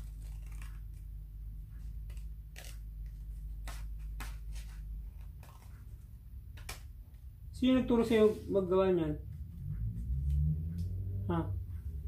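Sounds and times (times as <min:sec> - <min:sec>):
scissors snipping paper: 0:00.0 - 0:01.1, 0:01.8 - 0:05.8
low steady hum: 0:00.0 - 0:12.0.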